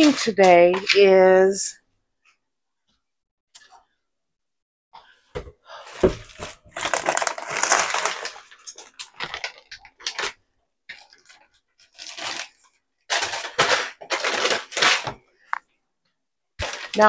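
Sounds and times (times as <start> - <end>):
plastic bag crinkling: 6.0 - 15.6, 16.6 - 17.0.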